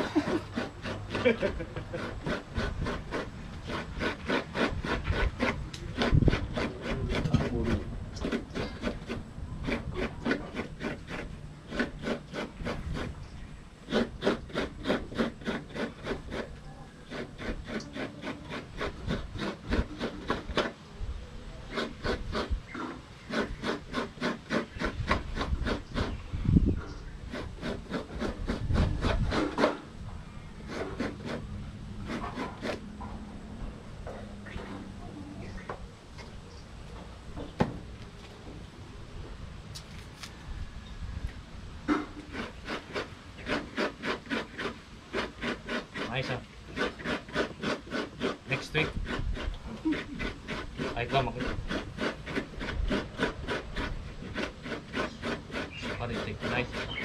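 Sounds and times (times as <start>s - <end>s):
coconut grating rasps: 0.0s - 13.2s, 13.8s - 20.8s, 21.6s - 26.2s, 27.1s - 29.9s, 30.6s - 32.9s, 41.8s - 57.0s.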